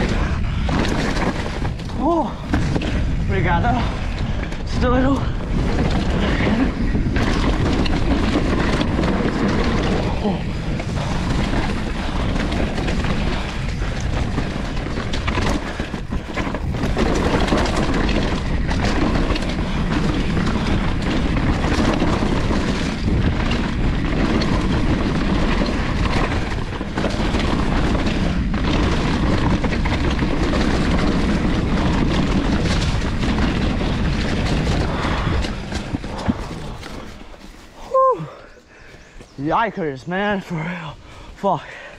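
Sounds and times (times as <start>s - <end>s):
bike knocks and rattles: 0.0s - 37.8s
tyres rumbling over rock and dirt: 0.0s - 37.9s
wind buffeting microphone: 0.0s - 41.9s.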